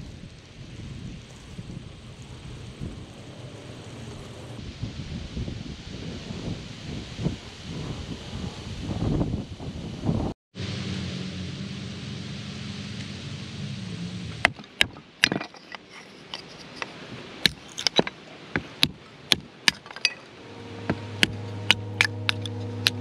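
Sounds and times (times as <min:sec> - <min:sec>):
wood splitting cracks: 0:14.4 - 0:15.8, 0:16.8 - 0:20.2
music: 0:20.4 - 0:23.0.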